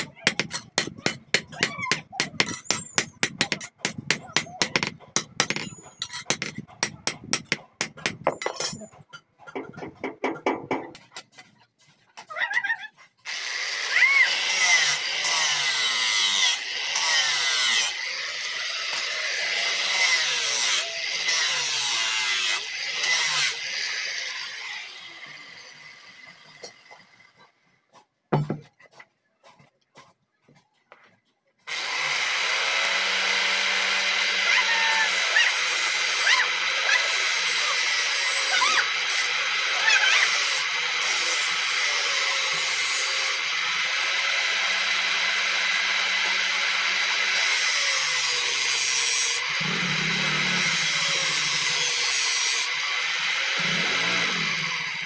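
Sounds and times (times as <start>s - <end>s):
angle grinder grinding steel: 0.0s - 9.1s, 13.3s - 27.4s, 31.7s - 55.0s
knock: 9.6s - 11.0s, 28.3s - 28.8s.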